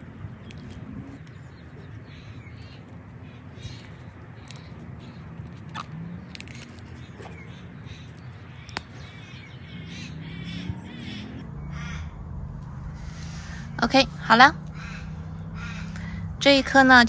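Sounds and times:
birds calling: 0.0 - 17.0
tape clicks and handling noise: 3.7 - 7.4, 8.1 - 9.0.

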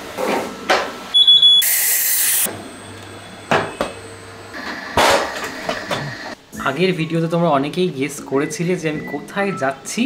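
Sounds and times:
short high beep: 1.2 - 2.1.

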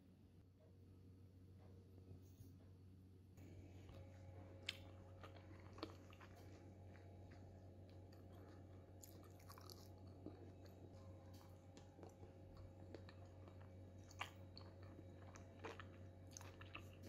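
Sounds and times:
low steady hum: 0.0 - 17.0
jelly being bitten and chewed: 4.6 - 17.0.

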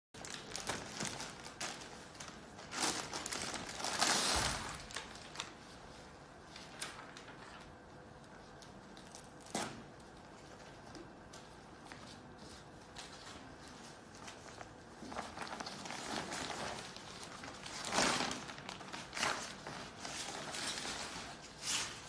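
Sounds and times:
plastic bag crinkling: 0.2 - 5.7, 13.3 - 22.0
fabric wrap rustling and clicking: 0.2 - 5.8, 6.4 - 22.0.

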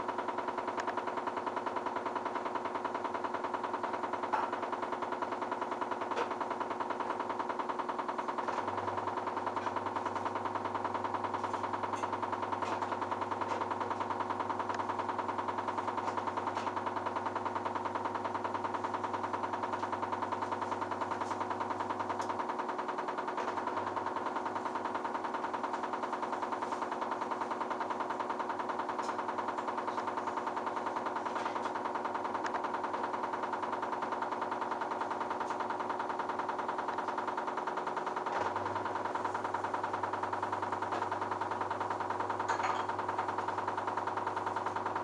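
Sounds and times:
washing machine motor whine: 0.0 - 45.0.

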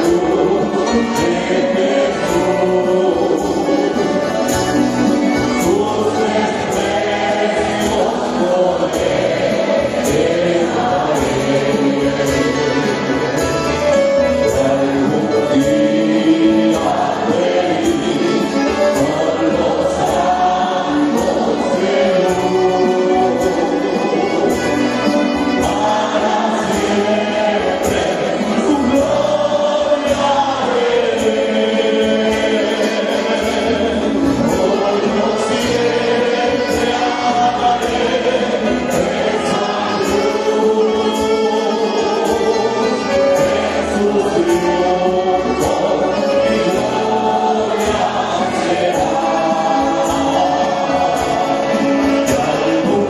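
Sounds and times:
congregation singing a hymn: 0.0 - 53.0
instrumental accompaniment: 0.0 - 53.0.

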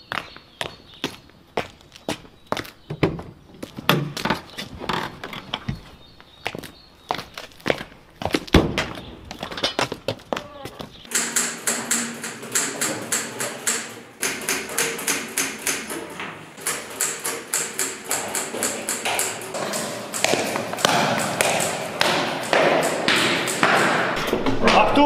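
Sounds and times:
irregular clicking and clatter: 11.0 - 24.4
wall clock ticking: 11.1 - 24.2.

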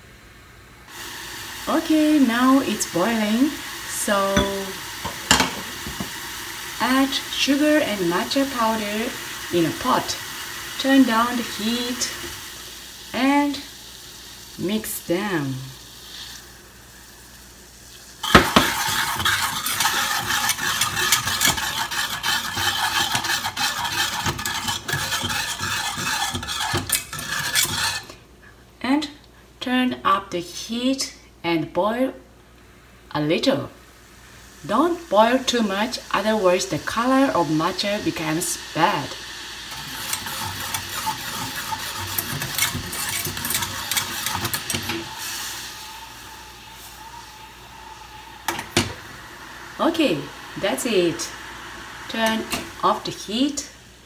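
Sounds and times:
faint steady hiss: 0.0 - 54.0
whisk scraping a metal saucepan: 18.2 - 28.2, 39.7 - 47.5.

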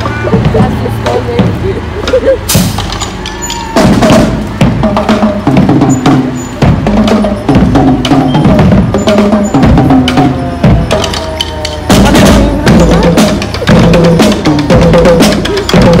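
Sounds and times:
drums beating: 0.0 - 16.0
brass horns playing a tune: 3.7 - 16.0.

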